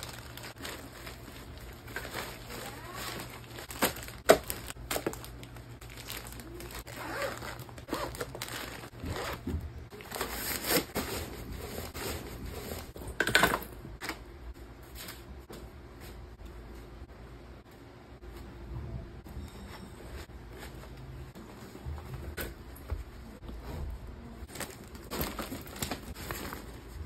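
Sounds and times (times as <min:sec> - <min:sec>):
packing cubes and wrappers rustling: 0:00.0 - 0:13.0, 0:24.4 - 0:27.0.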